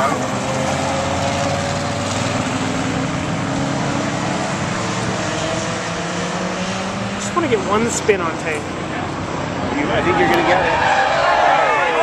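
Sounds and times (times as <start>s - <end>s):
race car engines: 0.0s - 12.0s.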